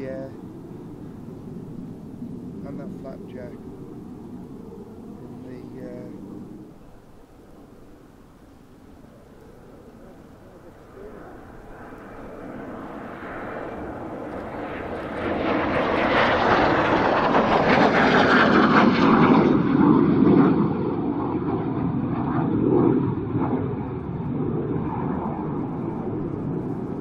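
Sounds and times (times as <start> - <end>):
jet aircraft flying low past: 0.0 - 27.0.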